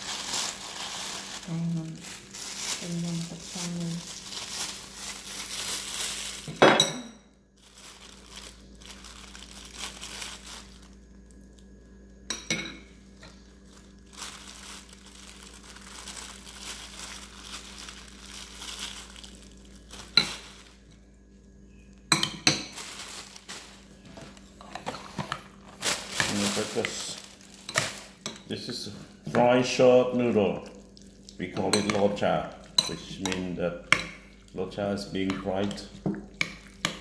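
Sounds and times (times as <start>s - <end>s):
faint crinkling: 0.0s - 6.5s, 7.6s - 11.9s, 13.2s - 22.0s, 22.7s - 24.6s, 25.6s - 28.3s
spoons clinking against bowls: 6.5s - 7.2s, 22.1s - 22.8s, 31.4s - 34.2s.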